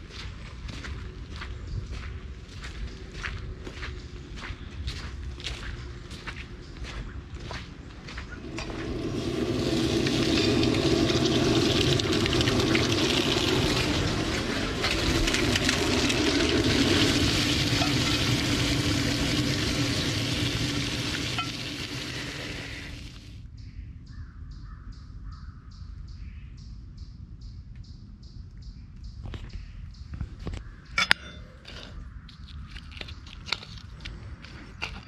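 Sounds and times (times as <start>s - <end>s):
bacon sizzling in a skillet: 9.2s - 23.2s.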